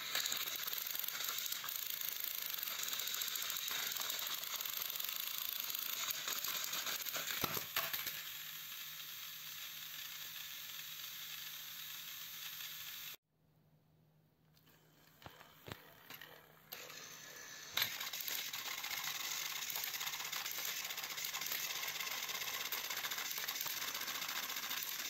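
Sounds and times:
toy trains clattering onto floor: 0.0s - 8.5s, 15.2s - 25.0s
toy train motors whirring: 0.0s - 13.2s, 14.6s - 25.0s.

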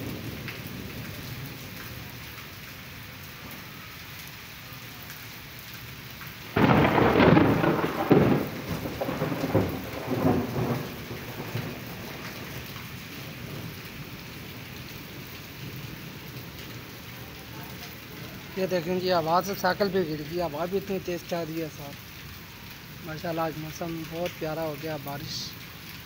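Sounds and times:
thunder rumbling: 0.0s - 2.4s, 6.5s - 22.1s
heavy rain on pavement: 0.0s - 26.0s.

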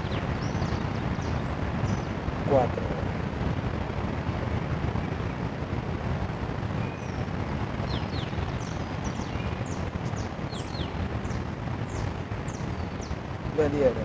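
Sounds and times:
small birds chirping: 0.0s - 2.7s, 6.5s - 14.0s
low outdoor rumble: 0.0s - 14.0s.

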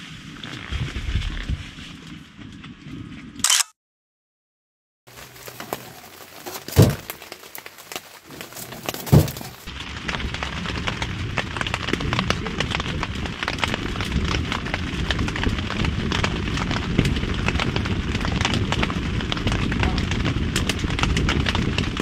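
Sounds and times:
wood fire crackling: 5.1s - 22.0s.

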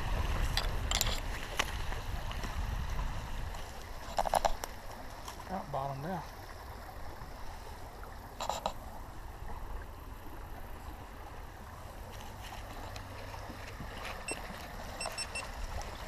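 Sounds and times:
wind rumble on microphone: 0.0s - 5.3s
creek water running over rocks: 0.0s - 16.0s.

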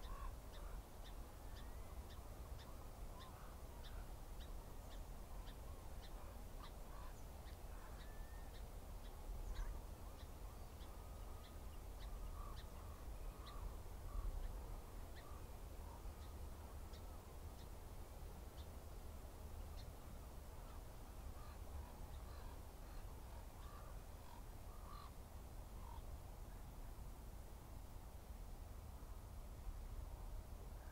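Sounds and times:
lower bird calls: 0.0s - 17.7s.

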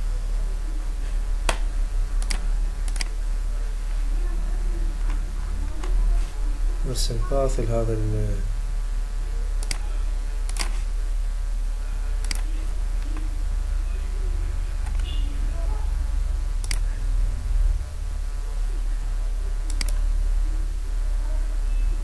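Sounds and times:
low electrical hum: 0.0s - 22.0s
computer mouse clicks: 1.4s - 3.2s, 9.6s - 9.8s, 10.5s - 10.8s, 12.2s - 13.2s, 16.6s - 16.9s, 19.6s - 20.1s.

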